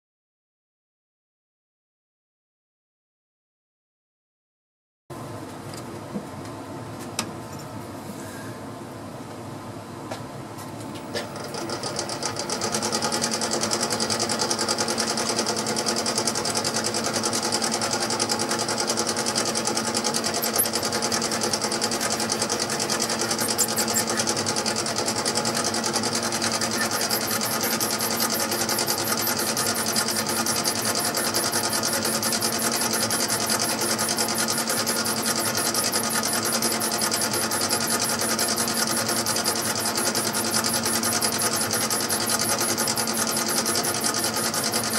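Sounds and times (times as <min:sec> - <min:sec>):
lathe motor humming and whirring: 0:11.1 - 0:44.9.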